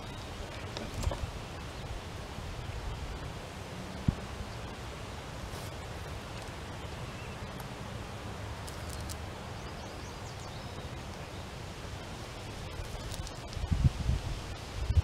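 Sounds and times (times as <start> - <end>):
faint clicks and rustles: 0.0 - 2.0, 8.6 - 9.3, 12.0 - 13.9
wind rumble on microphone: 0.0 - 8.5, 9.2 - 15.0.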